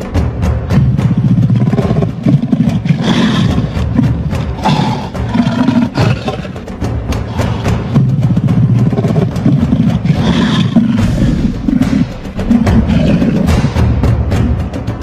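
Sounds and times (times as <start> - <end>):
deep booming drums: 0.0 - 15.0
percussion-heavy music: 0.0 - 15.0.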